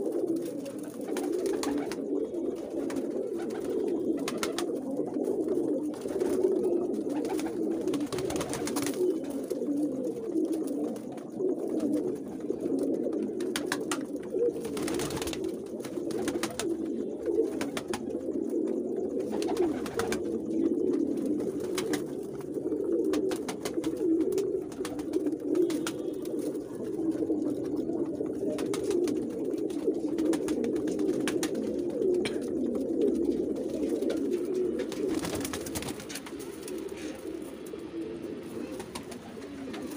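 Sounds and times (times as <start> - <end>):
pigeons cooing: 0.0 - 39.9.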